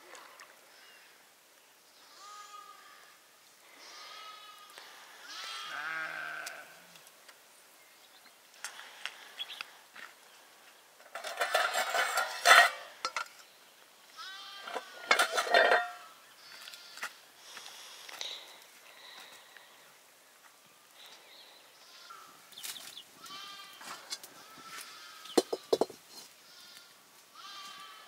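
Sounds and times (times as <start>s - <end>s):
sheep bleating: 2.1s - 3.2s, 3.8s - 6.8s, 14.2s - 15.8s, 23.2s - 25.4s, 26.4s - 28.0s.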